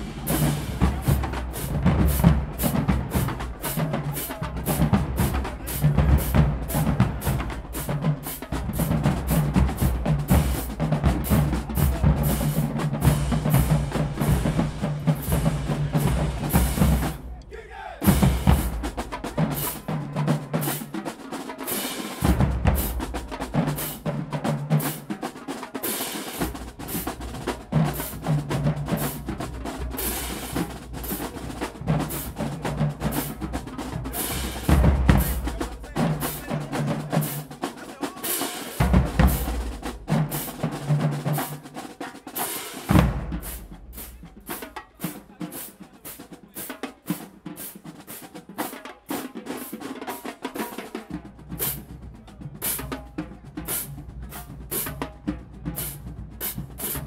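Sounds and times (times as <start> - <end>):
bass drums: 0.0 - 20.1, 22.2 - 24.8, 26.4 - 37.4, 38.8 - 41.2, 42.9 - 44.9
snare drum rolls: 0.0 - 57.0.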